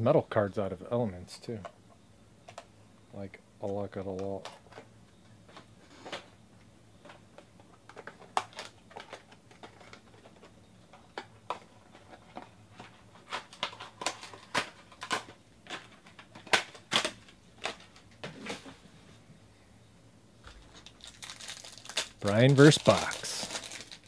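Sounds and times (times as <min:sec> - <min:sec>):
card wrappers crinkling: 0:11.2 - 0:18.2, 0:20.5 - 0:24.0
trading cards clicking: 0:22.0 - 0:24.0.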